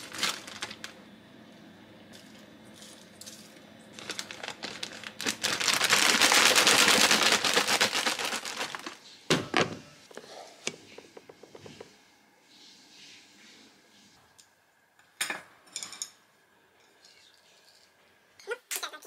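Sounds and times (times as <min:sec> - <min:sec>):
plastic bag crinkling: 0:00.0 - 0:01.0, 0:03.9 - 0:09.1.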